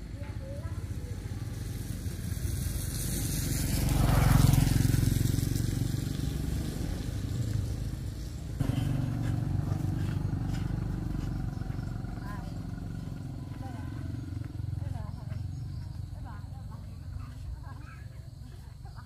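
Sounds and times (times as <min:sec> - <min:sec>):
motorcycle engine passing by: 0:00.1 - 0:19.0.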